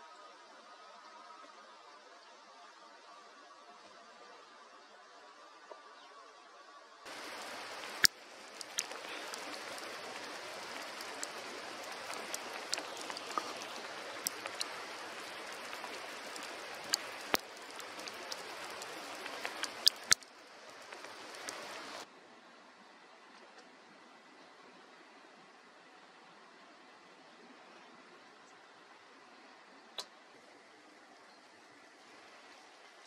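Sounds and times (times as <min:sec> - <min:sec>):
snow and rain falling hiss: 0:00.0 - 0:06.1, 0:07.0 - 0:33.0
drops ticking: 0:07.1 - 0:22.0.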